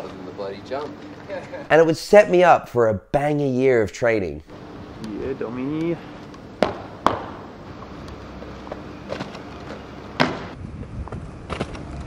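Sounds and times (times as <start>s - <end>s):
low steady hum: 0.0s - 12.0s
sharp knocks: 6.6s - 7.5s, 10.2s - 10.6s.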